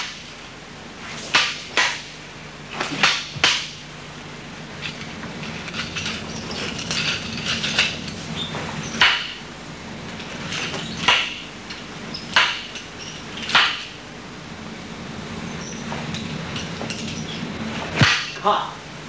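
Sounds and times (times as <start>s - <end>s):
nunchaku strikes knocking: 1.3s - 2.1s, 2.8s - 3.8s, 9.0s - 9.4s, 11.0s - 11.5s, 12.3s - 12.8s, 13.5s - 13.9s, 18.0s - 18.4s.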